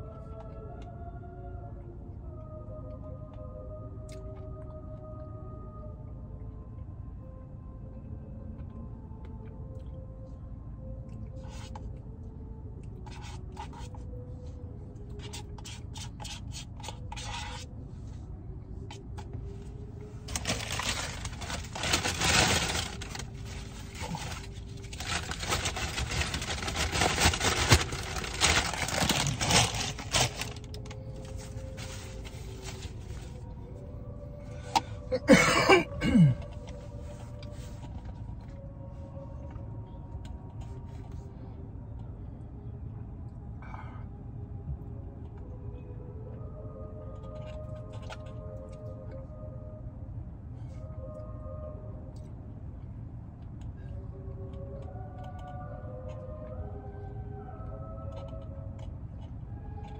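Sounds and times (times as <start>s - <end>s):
faint radio music: 0.0s - 59.9s
paper bag crumpling and rustling: 20.3s - 33.4s.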